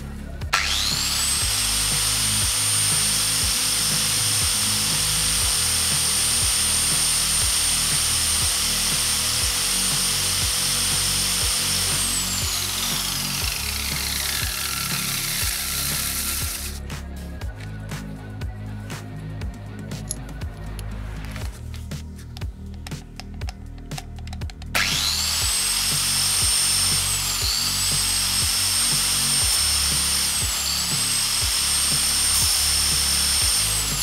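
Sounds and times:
sanding disc motor whining: 0.0 - 16.8, 24.8 - 34.0
background music: 0.0 - 34.0
metal grinding on disc: 0.5 - 16.8, 24.1 - 34.0.

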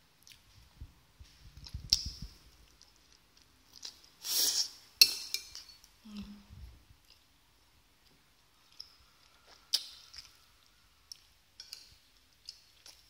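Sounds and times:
short hissing rustle: 4.2 - 4.8.

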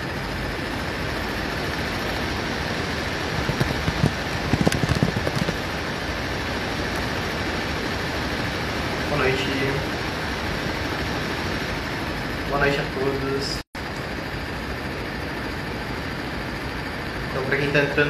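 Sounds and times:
crackles and knocks: 2.8 - 7.1.

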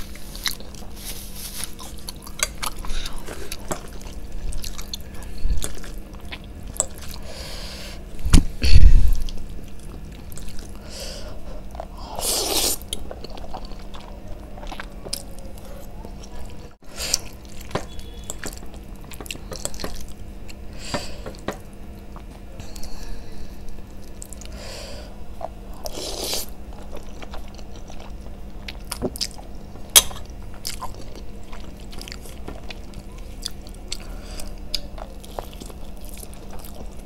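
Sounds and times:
wet chewing: 0.0 - 7.3, 9.2 - 20.6, 25.3 - 37.0
slurping noodles: 11.9 - 12.8, 25.8 - 26.5.

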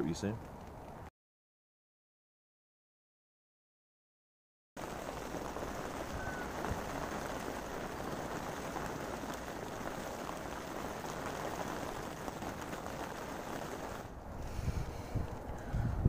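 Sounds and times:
rain falling on water: 4.8 - 14.2.

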